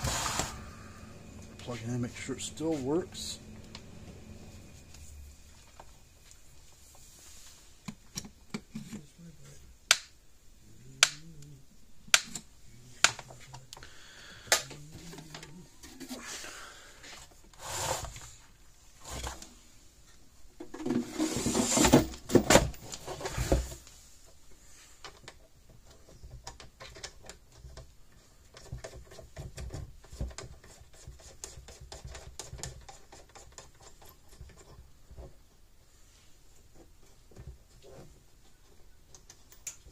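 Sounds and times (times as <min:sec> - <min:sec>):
light clicks and scratches: 0:22.8 - 0:35.5.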